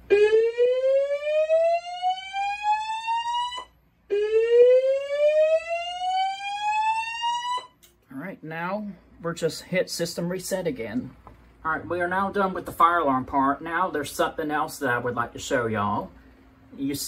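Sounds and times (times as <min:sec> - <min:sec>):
rising whoop alarm tone: 0:00.1 - 0:07.7.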